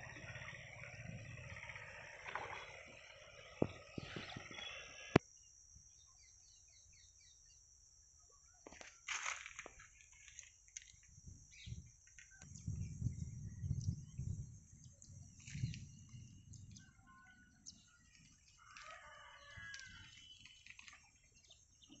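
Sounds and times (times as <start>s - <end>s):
low rumbles: 0.0s - 5.2s, 11.7s - 17.0s
rooster crowing: 18.6s - 20.2s.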